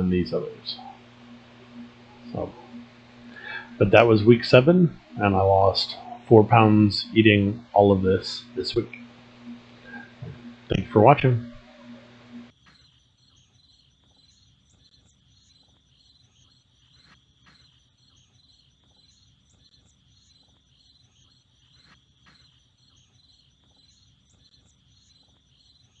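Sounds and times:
insect chorus chirping: 0.0 - 26.0.

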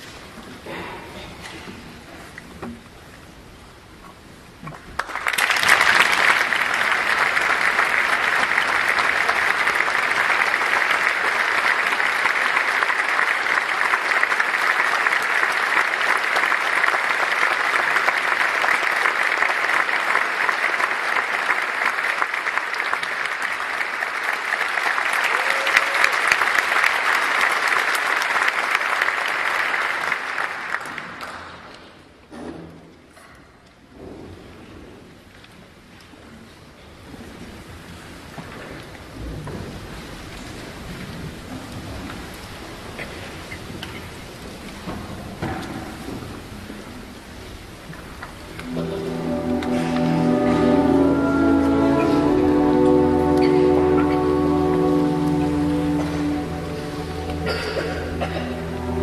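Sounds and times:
audience applauding: 4.7 - 31.8, 48.2 - 59.0.

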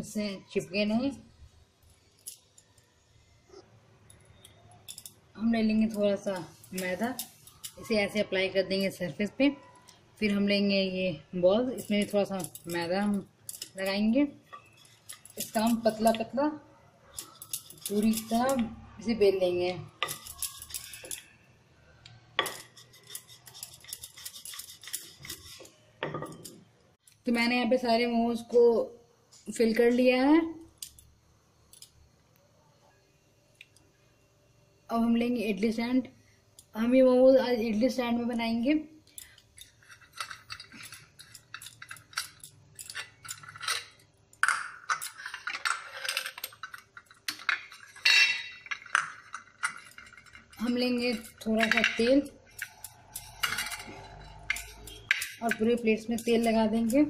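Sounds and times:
metal plates clinking and scraping: 14.5 - 16.2, 17.1 - 18.7, 20.0 - 21.4, 22.4 - 26.6, 39.2 - 57.0.

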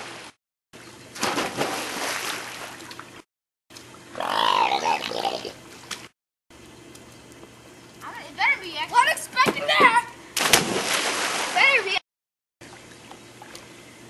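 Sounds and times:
person splashing into pool: 1.2 - 2.9, 10.4 - 11.7.

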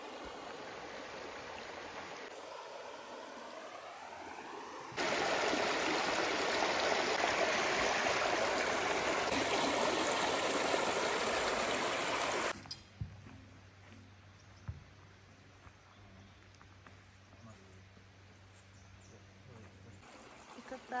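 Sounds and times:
water trickling: 0.0 - 2.8, 5.0 - 12.6
water rushing over rocks: 5.0 - 12.6.

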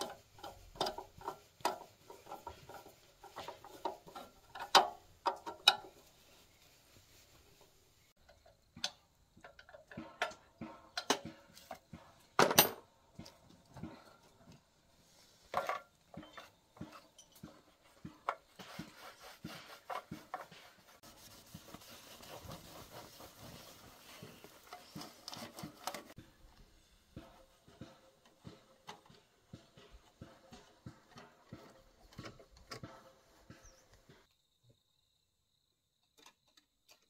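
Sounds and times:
cloth wiping metal: 0.0 - 8.1, 17.5 - 26.2.

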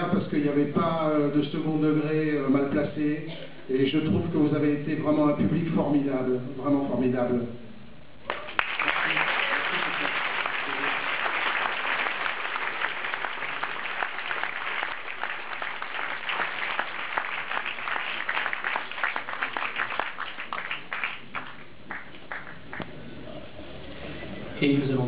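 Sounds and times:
audience applauding: 8.3 - 22.9.

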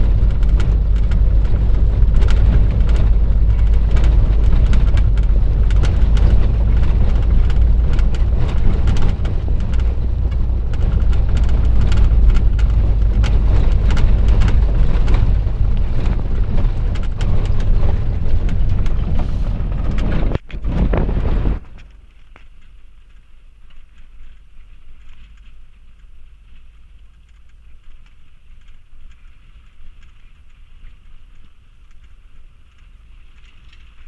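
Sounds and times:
body rattles and knocks: 0.0 - 22.4
stones under tyres: 0.0 - 34.0
vehicle cabin rumble: 0.0 - 34.0.

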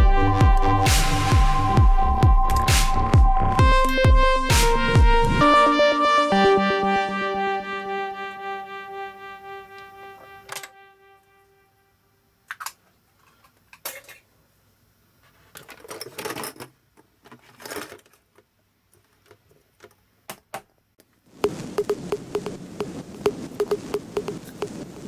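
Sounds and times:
held synthesizer note: 0.0 - 11.9
plastic toys rustling: 15.3 - 18.4.

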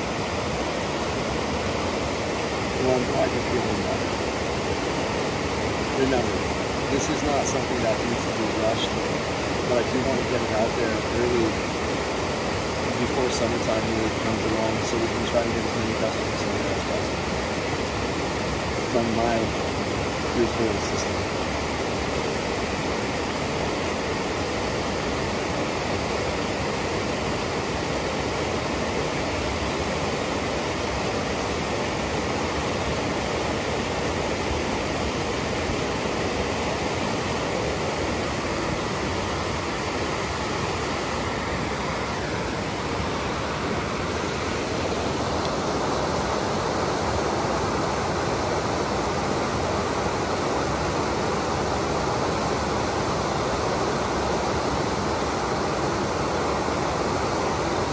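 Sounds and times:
water rushing over rocky cascade: 0.0 - 57.9.

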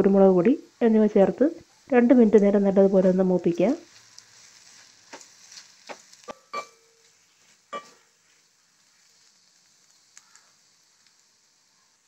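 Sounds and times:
faint sizzle in oil: 0.0 - 12.0
wooden spatula scraping a pan: 3.8 - 10.2
short metallic ring: 6.3 - 7.0.

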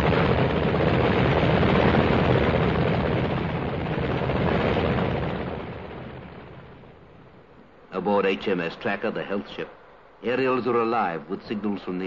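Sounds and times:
helicopter engines and rotors: 0.0 - 7.6.

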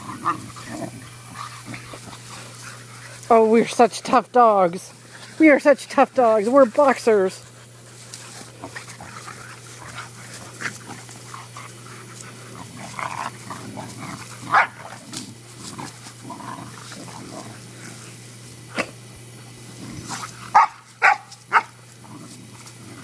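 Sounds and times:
dogs vocalising while playing: 0.0 - 5.4, 7.4 - 19.0, 19.6 - 23.0
dog barks: 14.5 - 14.9, 20.5 - 21.7.

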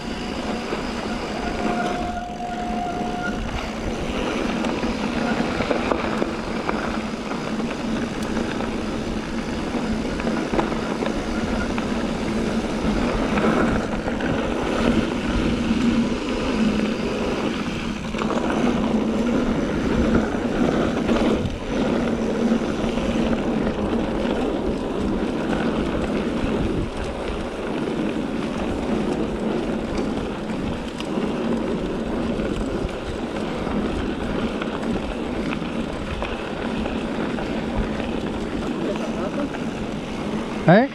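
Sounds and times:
bike tyres rumbling on gravel: 0.0 - 40.9
wind buffeting microphone: 0.0 - 40.9.

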